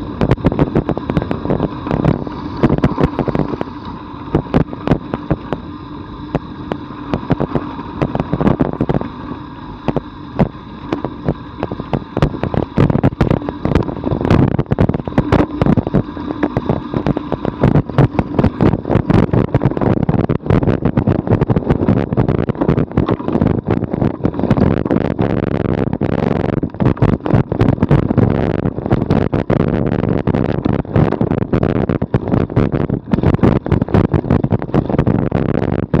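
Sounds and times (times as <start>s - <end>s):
bicycle rattling over ruts: 0.0s - 36.0s
tyres rumbling on gravel: 0.0s - 36.0s.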